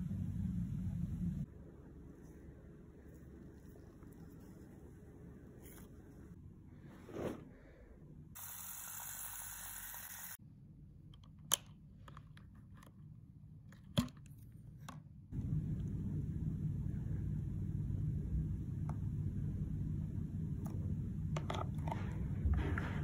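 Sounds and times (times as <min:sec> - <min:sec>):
steady low rumble: 0:00.0 - 0:02.1, 0:15.3 - 0:23.0.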